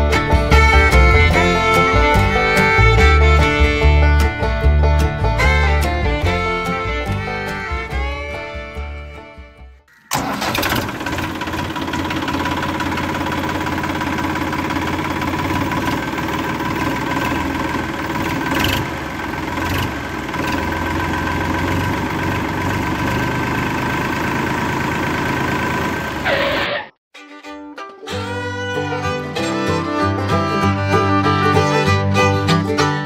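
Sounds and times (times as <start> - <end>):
toy tractor motor whining: 9.9 - 23.7, 26.1 - 26.9.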